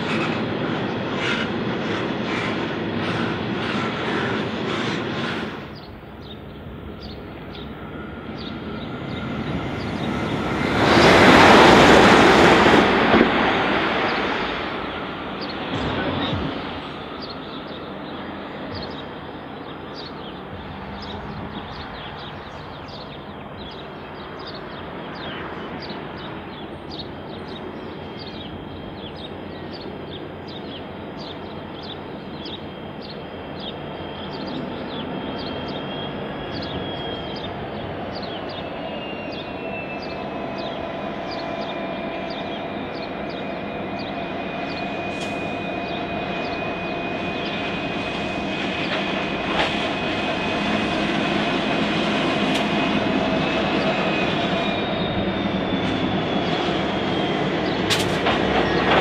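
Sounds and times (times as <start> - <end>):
locomotive engines: 0.0 - 59.0
steady whine: 0.0 - 59.0
train rumble: 0.0 - 59.0.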